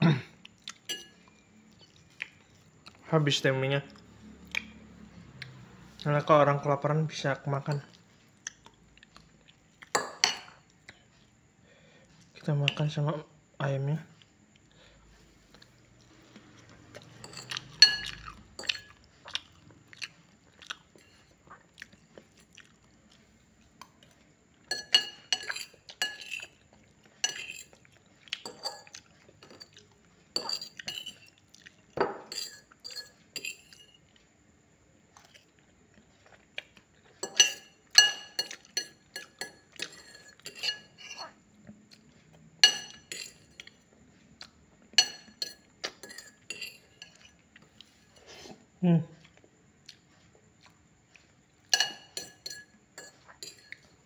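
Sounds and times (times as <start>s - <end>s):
chewing crispy food: 0.1s - 3.1s, 7.5s - 10.0s, 14.2s - 24.7s, 25.4s - 32.0s, 34.0s - 37.2s, 43.5s - 45.1s, 49.2s - 51.7s
cutlery clinking on a plate: 0.8s - 1.2s, 9.9s - 10.6s, 17.1s - 19.0s, 24.7s - 26.6s, 27.2s - 27.8s, 28.4s - 29.8s, 30.4s - 31.4s, 32.0s - 34.0s, 37.2s - 41.2s, 42.6s - 43.7s, 45.0s - 47.3s, 51.7s - 54.0s.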